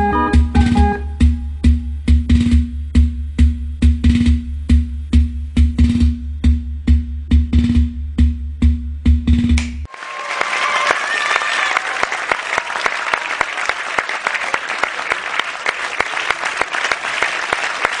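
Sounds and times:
music with heavy drum beat: 0.0s - 9.9s
audience applause: 9.9s - 18.0s
audience cheering: 9.9s - 18.0s.

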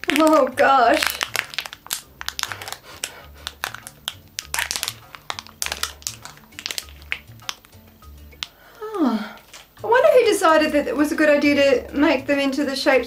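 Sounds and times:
plastic candy packet crinkling: 0.0s - 7.8s.

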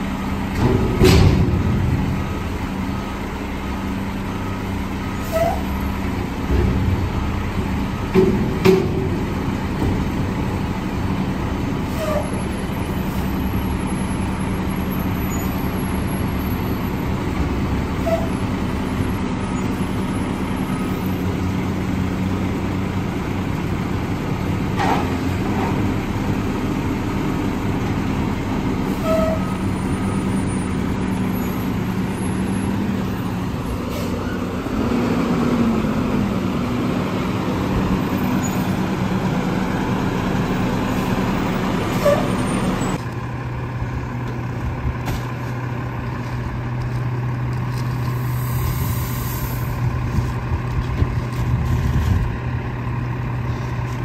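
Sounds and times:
garbage truck diesel engine running: 0.0s - 54.0s
air hiss burst: 48.2s - 49.7s.

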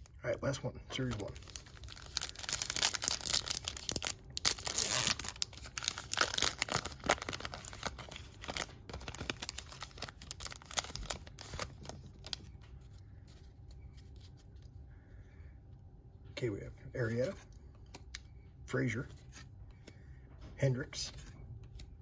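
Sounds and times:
wrapper crinkling and rustling: 0.9s - 13.4s
foil pack tearing: 1.0s - 12.4s.

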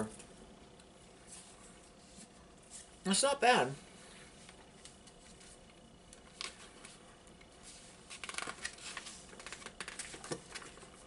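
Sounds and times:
paper pages rustling: 4.5s - 11.0s.

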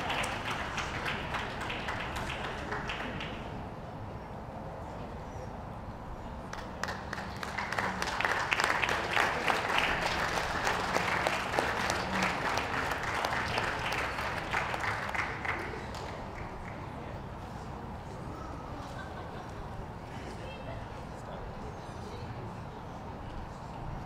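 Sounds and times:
crowd clapping: 0.0s - 3.6s, 6.4s - 17.2s.

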